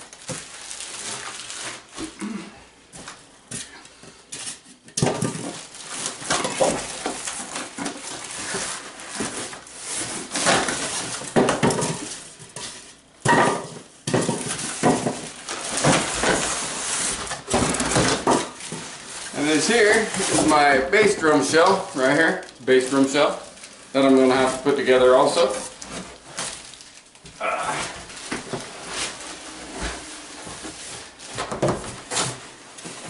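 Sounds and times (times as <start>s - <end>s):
plastic wrap rustling: 0.0s - 2.2s, 4.4s - 33.0s
cardboard scraping and crackling: 5.2s - 13.0s, 14.3s - 33.0s.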